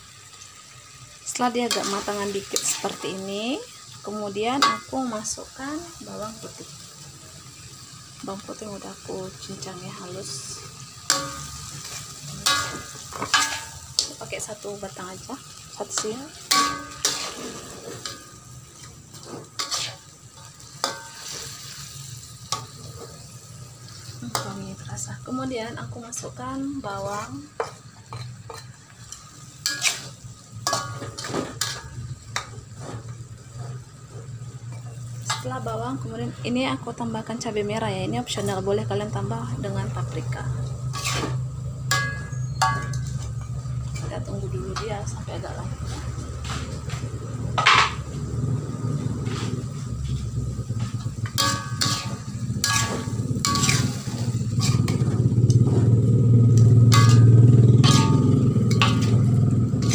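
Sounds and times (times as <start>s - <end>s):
faint frying sizzle: 0.0s - 59.9s
metal spatula clanking in wok: 4.4s - 5.2s, 11.0s - 14.5s, 15.4s - 24.7s, 27.1s - 33.8s, 34.7s - 35.6s, 40.6s - 45.1s, 47.5s - 48.1s, 51.1s - 59.9s.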